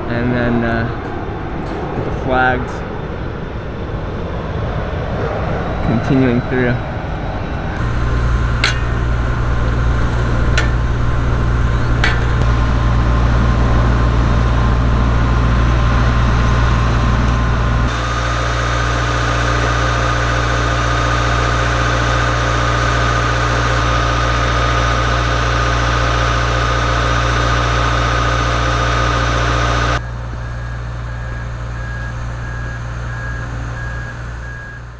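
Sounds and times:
diesel engine hum: 0:07.3 - 0:34.9
reversing beeper: 0:17.9 - 0:34.9.

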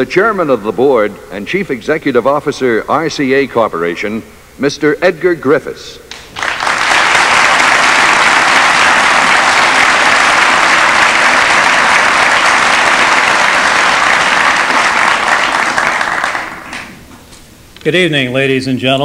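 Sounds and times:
audience applauding: 0:06.1 - 0:17.1.

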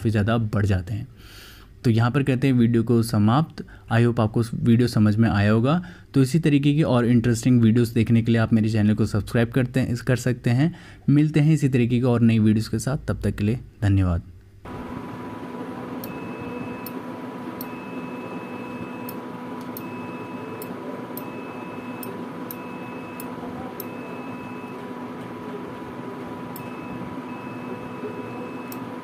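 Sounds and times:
steady hum: 0:14.4 - 0:29.0
multimeter continuity beeps: 0:16.0 - 0:29.0.

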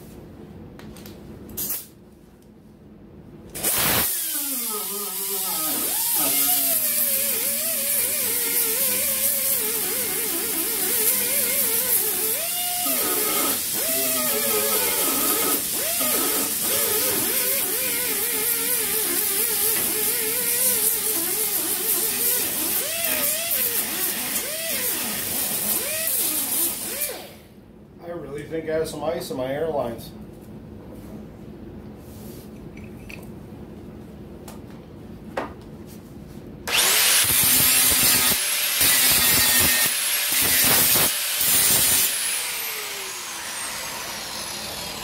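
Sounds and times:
air grinder whining on sheet metal: 0:03.6 - 0:27.4, 0:36.7 - 0:45.0.

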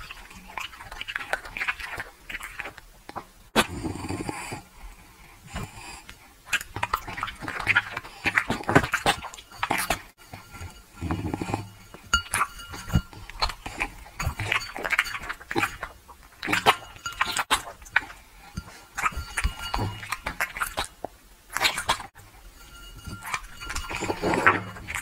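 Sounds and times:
dog chewing food: 0:06.5 - 0:22.4
clink of ceramic plate: 0:09.3 - 0:13.6, 0:14.2 - 0:17.4, 0:18.6 - 0:20.6, 0:22.5 - 0:25.0.

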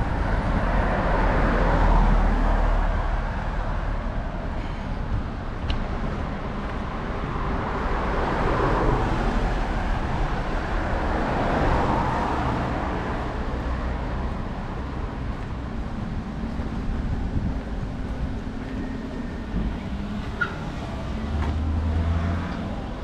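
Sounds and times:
cars passing: 0:00.0 - 0:23.0
steady low rumble: 0:09.0 - 0:21.2.

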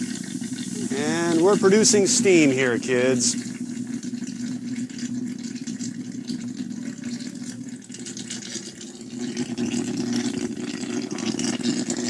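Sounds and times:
low electrical buzz: 0:00.0 - 0:08.1
water crackling and sizzling hiss: 0:00.0 - 0:12.0.

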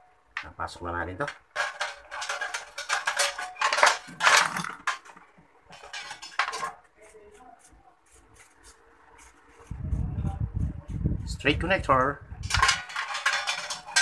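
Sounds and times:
wire scraping against metal enclosure: 0:01.2 - 0:07.0, 0:12.4 - 0:14.0.

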